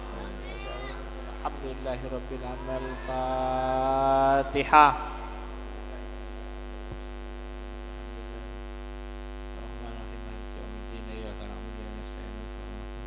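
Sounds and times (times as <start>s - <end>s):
faint murmuring voices: 0.0s - 6.5s
electrical mains hum: 0.0s - 13.0s.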